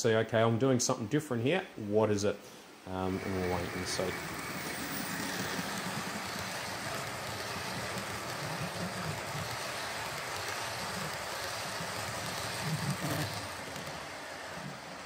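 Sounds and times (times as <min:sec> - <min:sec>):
model train wheels rumbling on rails: 0:03.0 - 0:15.0.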